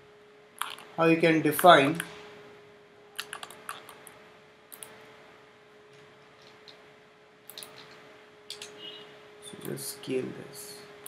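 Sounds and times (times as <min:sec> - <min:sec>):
faint steady hum: 0:00.0 - 0:11.0
keyboard and mouse clicks: 0:00.6 - 0:00.9, 0:03.2 - 0:05.0, 0:07.5 - 0:08.8.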